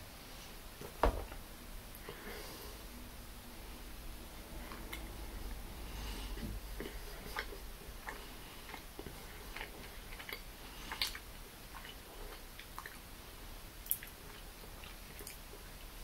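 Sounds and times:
person chewing: 0:06.7 - 0:13.0, 0:13.8 - 0:15.7.

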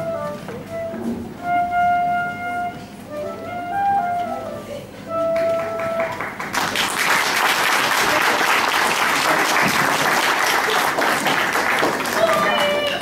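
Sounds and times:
held flute note: 0:00.0 - 0:06.4
audience applause: 0:05.6 - 0:13.0.

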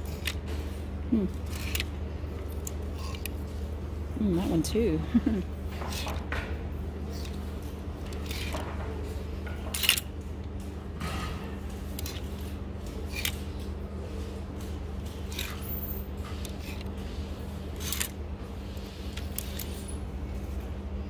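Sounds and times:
hangers scraping along a rack: 0:00.0 - 0:01.9, 0:02.6 - 0:03.7, 0:05.8 - 0:06.3, 0:07.2 - 0:08.7, 0:11.8 - 0:20.6
steady low hum: 0:00.0 - 0:21.0.

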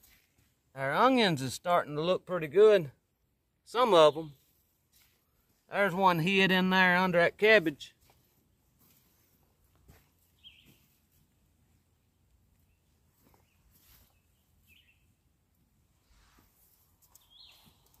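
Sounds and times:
faint bird chirps: 0:10.4 - 0:11.0, 0:12.5 - 0:15.2, 0:17.1 - 0:18.0.

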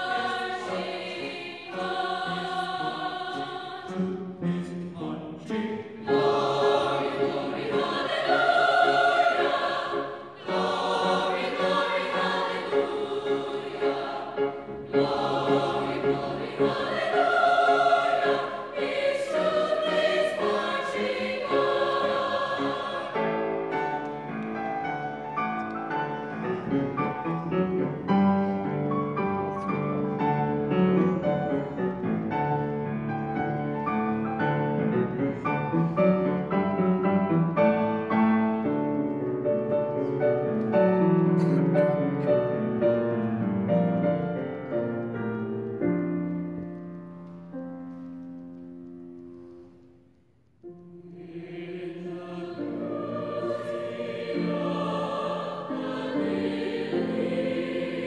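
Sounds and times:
mixed choir singing: 0:00.0 - 0:32.8, 0:51.0 - 0:58.0.

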